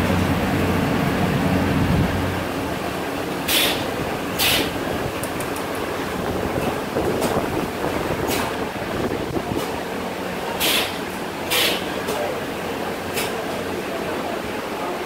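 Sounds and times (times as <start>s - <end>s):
factory machinery din: 0.0s - 14.4s
air hisses: 3.5s - 4.8s, 10.6s - 11.9s.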